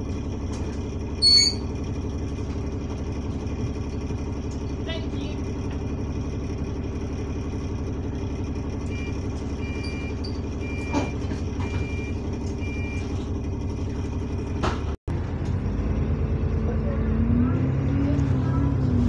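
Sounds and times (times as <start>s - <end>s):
bus diesel engine idling: 0.0s - 17.2s
short high beeps: 1.2s - 1.6s.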